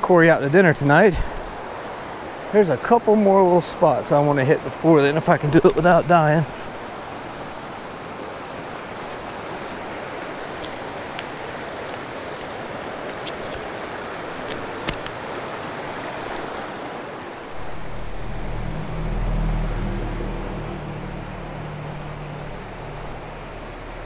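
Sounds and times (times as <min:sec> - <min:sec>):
creek running over rocks: 0:00.0 - 0:17.9
low rumble: 0:17.5 - 0:24.0.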